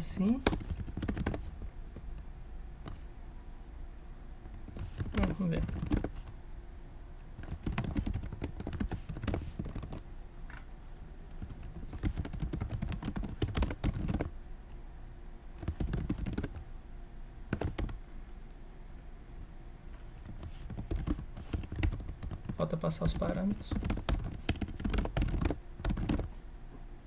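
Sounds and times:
keyboard typing: 0.3 - 2.2, 4.4 - 6.3, 7.4 - 14.3, 15.6 - 16.6, 17.5 - 18.0, 19.9 - 26.3.

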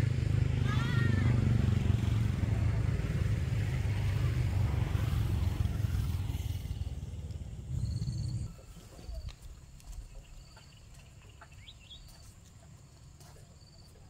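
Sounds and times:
vehicle engine running: 0.0 - 13.9.

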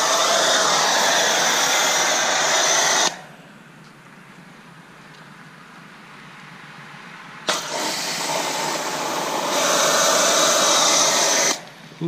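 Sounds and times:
pressure washer spraying water: 0.0 - 3.3, 7.5 - 11.7.

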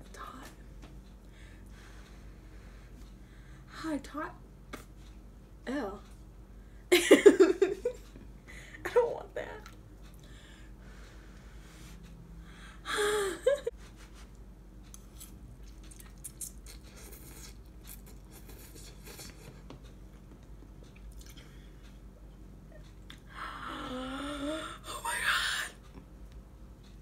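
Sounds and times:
woman's voice: 3.7 - 4.4, 5.7 - 6.0, 8.8 - 9.7, 24.7 - 25.8.

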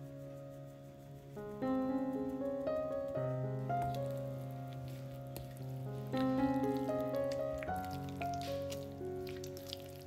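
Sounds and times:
background music melody: 0.0 - 10.0
wooden spoon stirring thick batter: 3.8 - 10.0.

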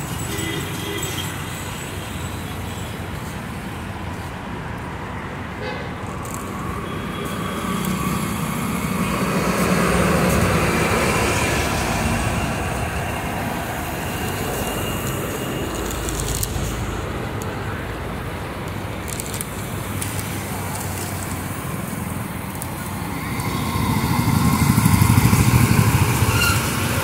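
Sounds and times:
road traffic noise: 0.0 - 27.0
vehicle passing close: 19.0 - 27.0.

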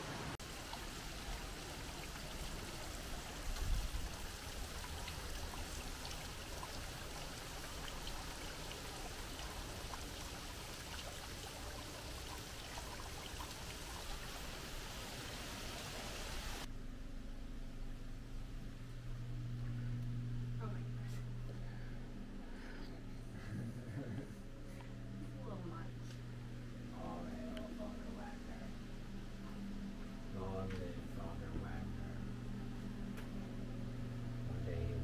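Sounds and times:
waterfall splashing over rocks: 0.0 - 16.7.

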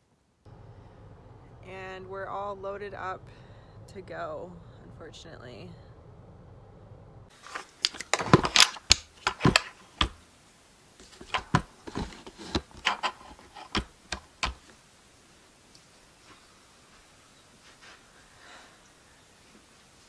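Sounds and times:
camera handling knocks and clicks: 11.0 - 14.6.

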